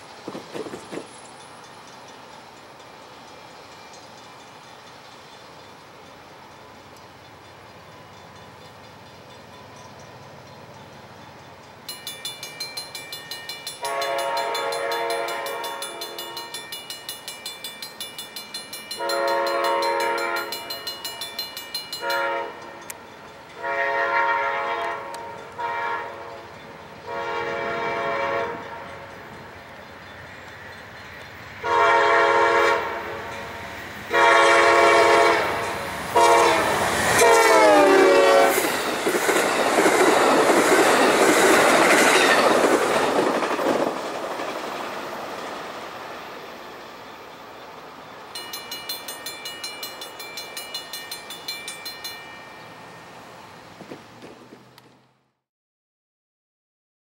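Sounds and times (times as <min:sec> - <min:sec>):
crossing bell ringing: 0:01.2 - 0:38.9, 0:48.1 - 0:54.0
locomotive horn blasts: 0:13.8 - 0:16.5, 0:19.0 - 0:20.6, 0:22.0 - 0:22.9, 0:23.6 - 0:29.1, 0:31.6 - 0:33.4, 0:34.1 - 0:38.7
passenger cars rumbling by: 0:51.5 - 0:55.2.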